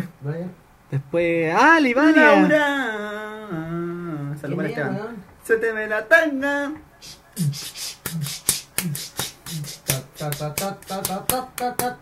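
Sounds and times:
person beatboxing: 7.0 - 12.0
short pitched vocal notes: 7.0 - 12.0.

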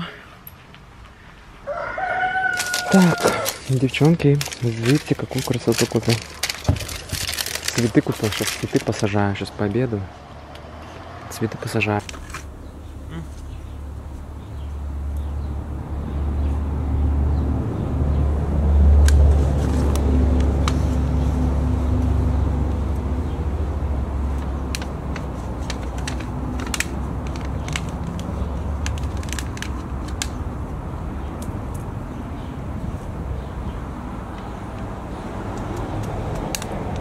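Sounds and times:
steady low rumble: 12.0 - 18.0.

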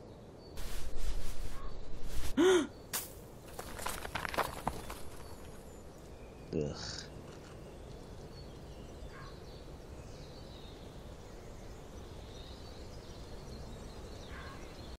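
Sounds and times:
steady forest hiss: 0.0 - 15.0
faint short bird calls: 9.0 - 9.4, 14.3 - 14.8.

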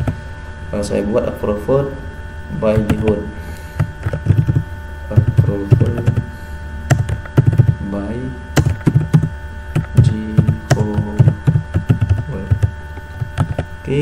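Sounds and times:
electrical hum: 0.0 - 14.0
keyboard typing clicks: 3.8 - 4.6, 6.9 - 7.7, 8.6 - 13.7.

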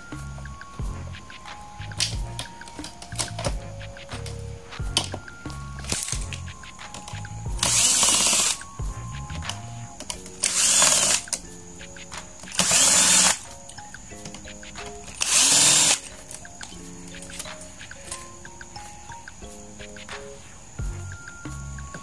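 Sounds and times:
cordless drill spinning: 7.6 - 8.6, 10.4 - 11.3, 12.5 - 13.4, 15.2 - 16.1.

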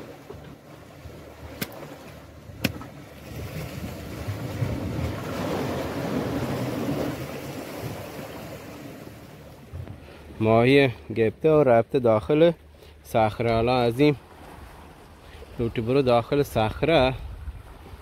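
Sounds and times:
sea waves washing on rocks: 0.0 - 9.7.

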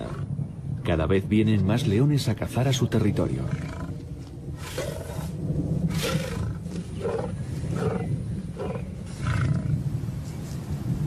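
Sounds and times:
lion roaring: 0.0 - 0.3, 3.2 - 9.9.

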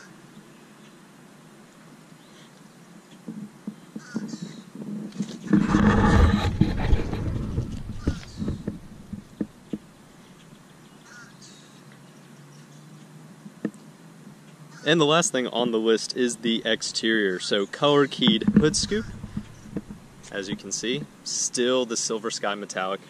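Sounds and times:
wind buffeting microphone: 6.0 - 9.5, 18.3 - 21.2
birds chirping: 7.7 - 13.1, 17.1 - 21.3.

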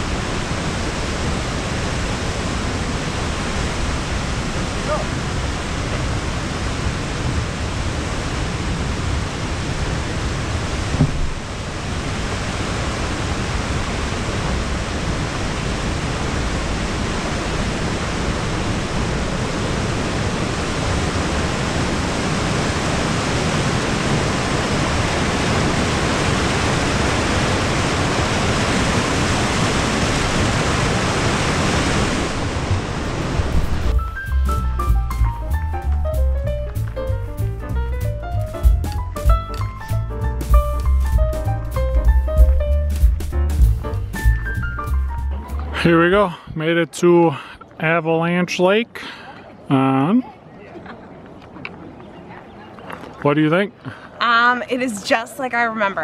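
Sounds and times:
creek rushing over rocks: 0.0 - 34.2
brief bump: 10.9 - 11.4.

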